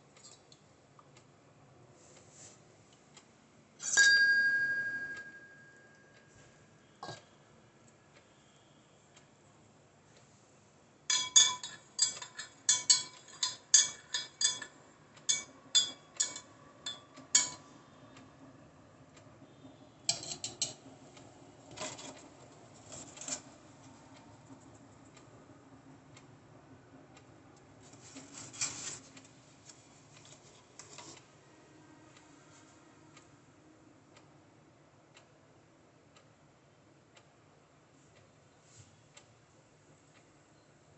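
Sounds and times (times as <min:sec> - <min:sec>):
metal spoon clinking against glass: 0:03.8 - 0:05.8, 0:11.1 - 0:17.6.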